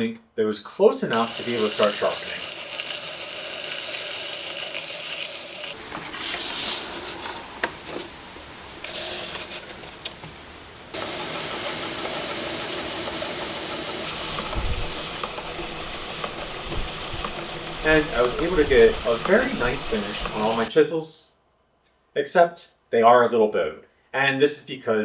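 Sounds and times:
high hiss bursts: 1.1s - 7.2s, 10.9s - 20.7s
belt sharpener motor running: 1.2s - 5.8s, 11.0s - 20.7s
chisel grinding on abrasive belt: 1.2s - 5.8s, 11.0s - 20.7s.

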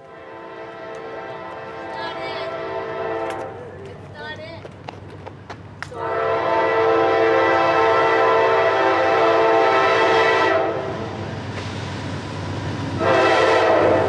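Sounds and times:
locomotive air horn blast: 0.1s - 3.7s, 6.0s - 11.0s, 13.0s - 14.0s.

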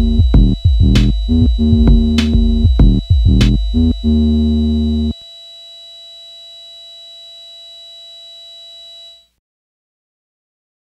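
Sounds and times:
synthesizer chord with deep bass: 0.0s - 5.2s
faint high electronic tone: 0.0s - 9.4s.

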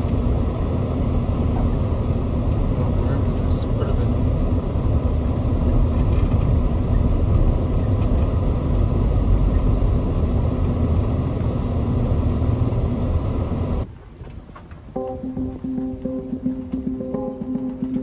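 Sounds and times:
engine and tyres rumbling: 0.0s - 18.0s.

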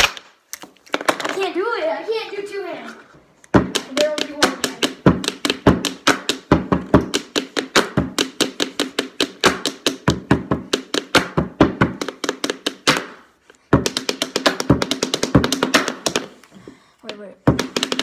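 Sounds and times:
pens drumming on hard surface: 3.5s - 16.4s, 17.0s - 18.0s.

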